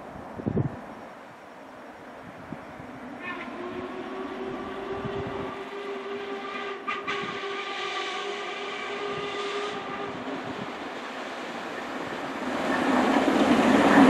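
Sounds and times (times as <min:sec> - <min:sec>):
steam locomotive whistle: 0:03.2 - 0:10.4.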